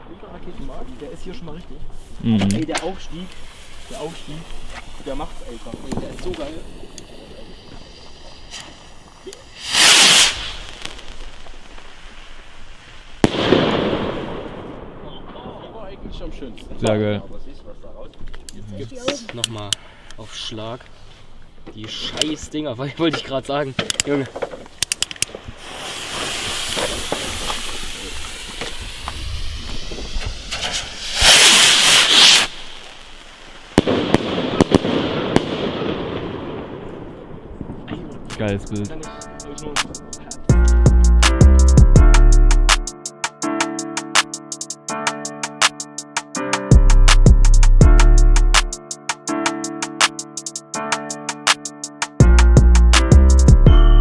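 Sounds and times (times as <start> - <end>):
firework crackle: 0.0 - 17.6, 24.0 - 40.5
firework rocket whooshing: 2.9 - 15.2, 24.6 - 40.4
firework bang: 5.0 - 16.5, 25.3 - 40.3
sharp pops: 5.7 - 12.3, 23.8 - 35.6, 38.3 - 40.4.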